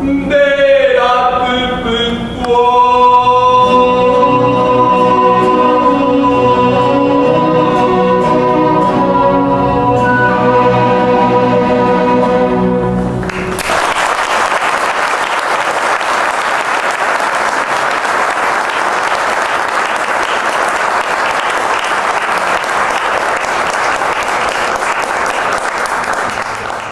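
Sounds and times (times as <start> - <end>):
chamber orchestra chord: 3.6 - 13.6
audience applause: 13.2 - 26.9.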